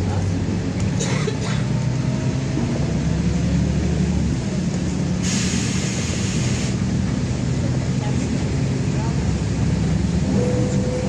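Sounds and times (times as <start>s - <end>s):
bus diesel engine humming: 0.0s - 11.0s
road noise: 0.0s - 11.0s
air hissing: 5.2s - 6.8s.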